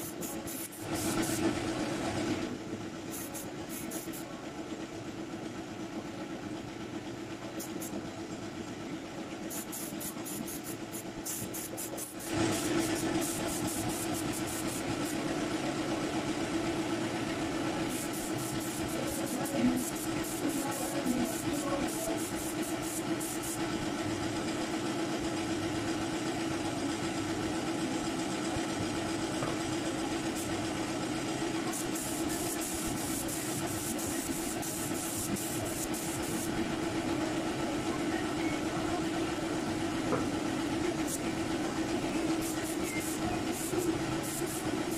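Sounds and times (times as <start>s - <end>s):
spray gun air bursts hissing: 0.0s - 1.5s, 3.1s - 4.3s, 7.6s - 8.0s, 9.5s - 15.2s, 17.9s - 23.7s, 31.6s - 36.6s, 42.2s - 44.9s
air compressor motor humming: 0.0s - 44.9s.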